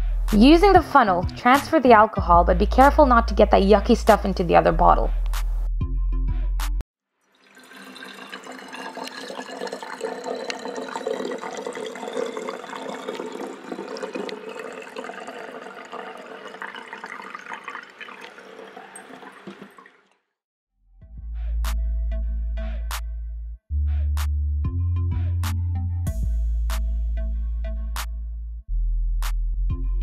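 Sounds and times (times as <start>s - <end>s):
liquid gurgling and splashing into bottle: 7.4s - 20.1s.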